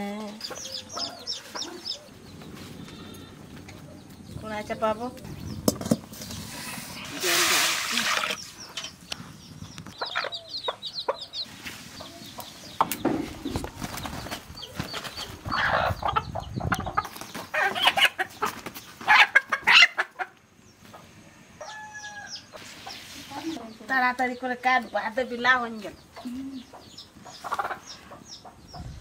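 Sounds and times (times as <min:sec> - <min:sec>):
wings flapping: 0:13.4 - 0:15.5
rooster clucking and squawking: 0:15.4 - 0:20.4.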